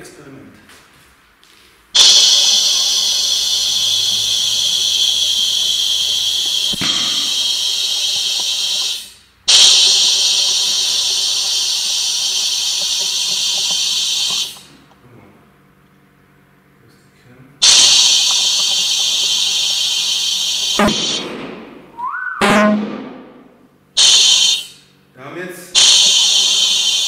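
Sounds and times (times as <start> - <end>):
compressed air hissing into tyre: 1.9 - 14.9, 17.6 - 21.3, 24.0 - 24.9, 25.8 - 27.0.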